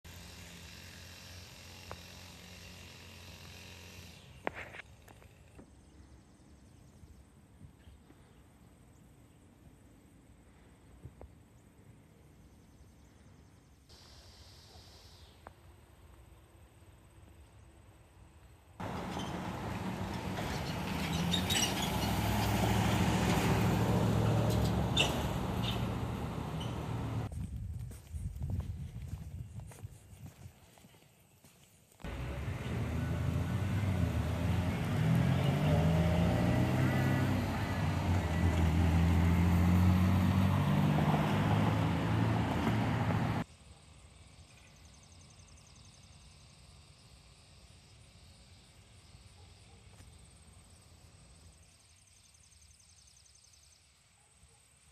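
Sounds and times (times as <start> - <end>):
passing car traffic: 18.8 - 27.3, 32.0 - 43.5
tyre and road noise: 18.8 - 27.3, 32.0 - 43.5.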